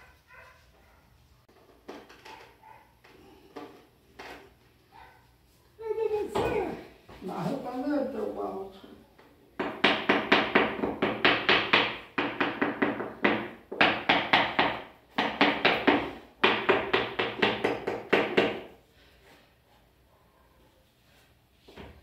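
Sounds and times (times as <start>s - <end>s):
rapid tapping on ceramic tile: 9.6s - 18.6s.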